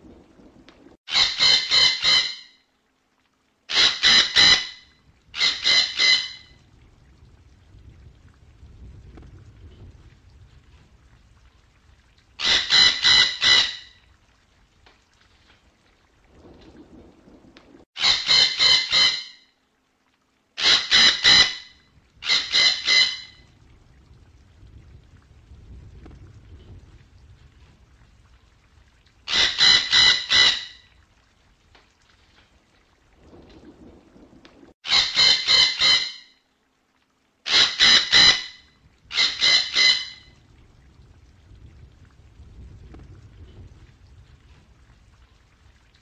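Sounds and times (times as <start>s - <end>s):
parrot calling: 1.1s - 2.5s, 3.7s - 4.8s, 5.4s - 6.5s, 12.4s - 13.9s, 18.0s - 19.4s, 20.6s - 23.4s, 29.3s - 30.8s, 34.9s - 36.3s, 37.5s - 40.2s.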